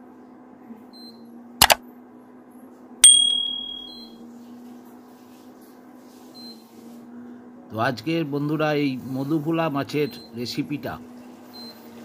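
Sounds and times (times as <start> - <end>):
bright bell ding: 3.0 - 4.1.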